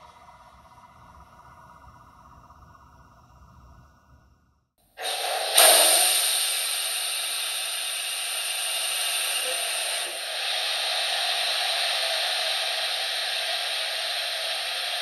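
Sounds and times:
air brakes hissing from speaker: 5.0 - 15.0.

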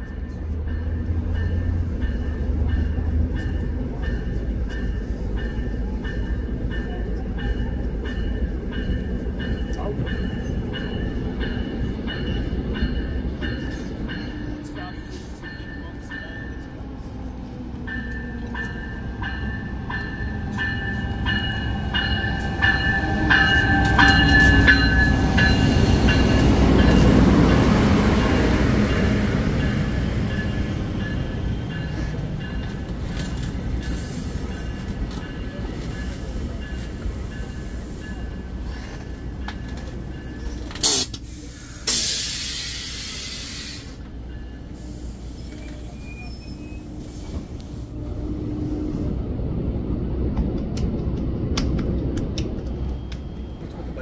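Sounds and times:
locomotive rumbling: 0.0 - 54.0
bell ringing: 17.9 - 27.1.

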